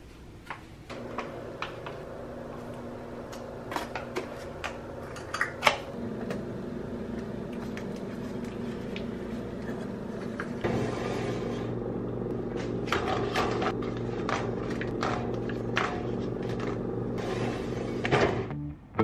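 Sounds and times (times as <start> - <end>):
steady low hum: 0.9 - 19.0.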